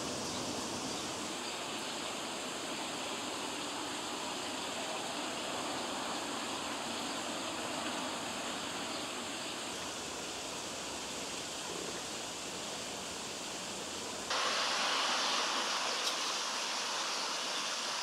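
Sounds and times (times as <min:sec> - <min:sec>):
steady rushing noise: 0:14.3 - 0:18.0.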